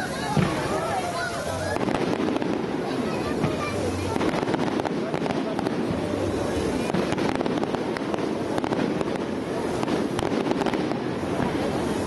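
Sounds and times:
continuous fireworks display noise: 0.0 - 12.0
fireworks cracking and popping: 0.0 - 12.0.

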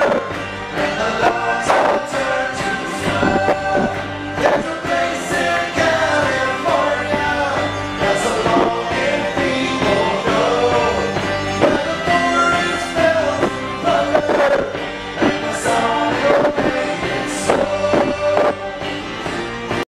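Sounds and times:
man singing: 0.0 - 19.0
banjo plucking: 0.0 - 19.8.

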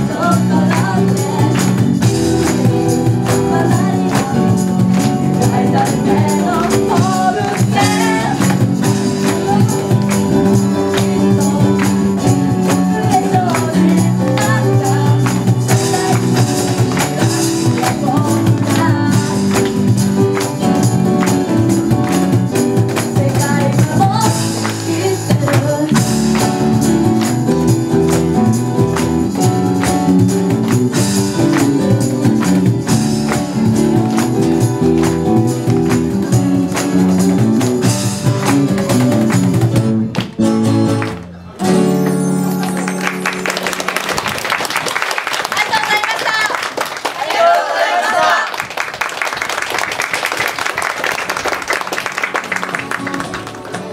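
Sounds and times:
boy and girl singing: 0.0 - 2.6, 3.3 - 19.7
acoustic pop band playing: 0.0 - 46.4, 50.0 - 53.9.

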